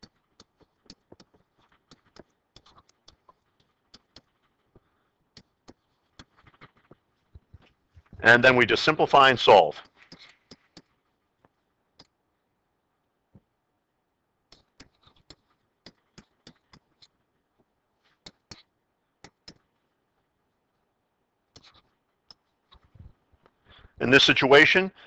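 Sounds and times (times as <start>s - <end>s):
stylus clicking and scratching: 0.0s - 12.2s, 14.5s - 20.0s, 21.4s - 24.0s.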